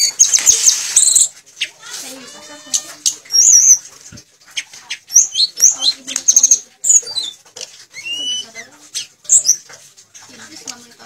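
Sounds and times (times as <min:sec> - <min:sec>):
bird singing whistled notes: 0:00.0 - 0:01.3, 0:03.3 - 0:03.8, 0:05.1 - 0:09.6.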